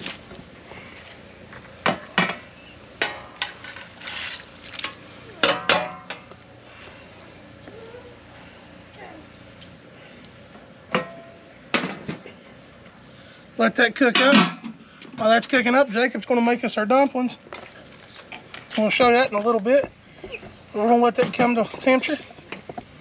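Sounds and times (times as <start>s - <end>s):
steady hiss: 0.0s - 23.0s
metallic clanks of pan and lid: 10.9s - 12.2s.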